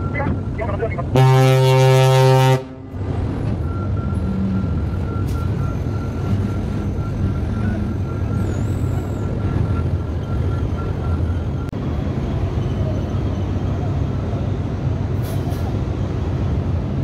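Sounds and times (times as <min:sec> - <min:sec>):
low horn blast: 0:01.1 - 0:03.0.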